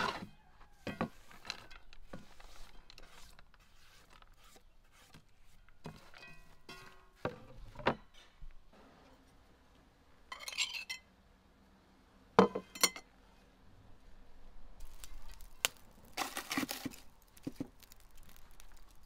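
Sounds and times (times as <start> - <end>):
pot scraping on metal stove: 0.9 - 4.5.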